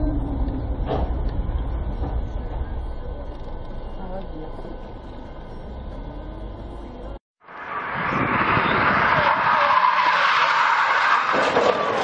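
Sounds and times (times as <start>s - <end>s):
low rumble of car driving: 0.0s - 12.0s
tyres skidding: 4.9s - 12.0s.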